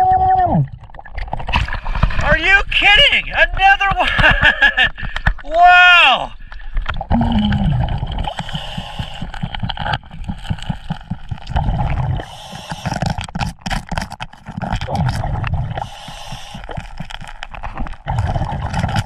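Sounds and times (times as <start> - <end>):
underwater rushing and gurgling: 0.6 - 5.5, 6.2 - 19.0
gravel clicking and knocking: 6.8 - 19.0.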